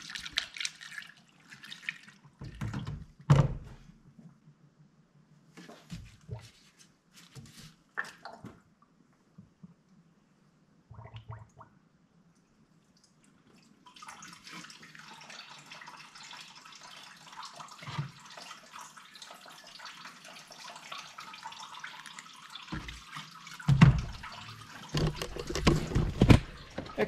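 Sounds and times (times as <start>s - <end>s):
liquid pouring through funnel: 0.0s - 2.7s, 12.8s - 27.0s.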